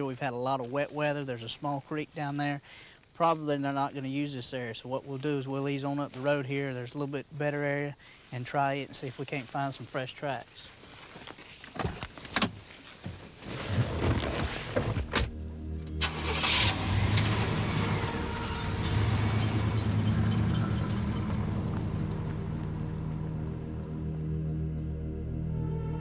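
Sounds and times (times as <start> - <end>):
car engine starting and running: 14.7 - 24.7.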